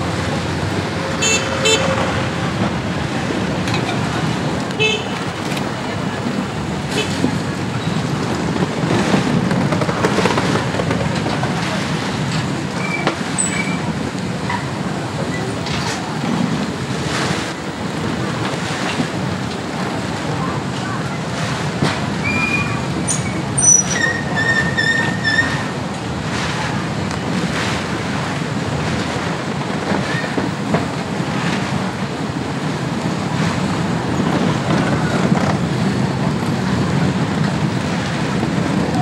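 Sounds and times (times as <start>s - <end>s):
passing scooters and cars: 0.0s - 16.2s.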